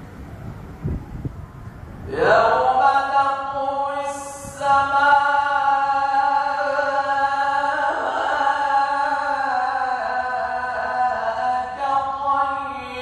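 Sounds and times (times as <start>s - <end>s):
man reciting melodically: 2.1s - 13.0s.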